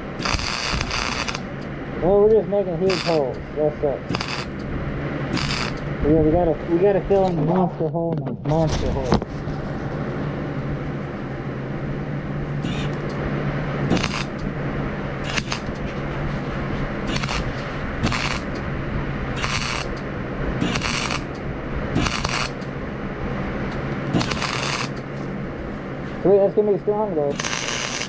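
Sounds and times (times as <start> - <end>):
arc welding crackling hiss: 0.0 - 4.7, 5.3 - 5.9, 12.6 - 13.0, 13.9 - 14.5, 15.2 - 15.8, 17.0 - 18.6, 19.4 - 20.0, 20.6 - 22.7, 24.1 - 25.2, 27.3 - 28.0
steady low hum: 0.0 - 28.0.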